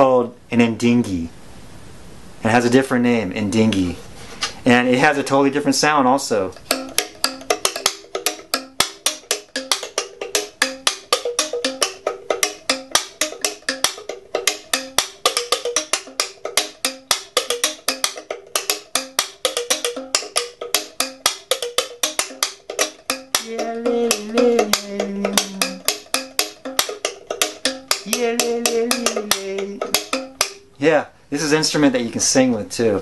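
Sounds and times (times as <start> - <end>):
thumb piano plucked notes: 6.5 - 30.8.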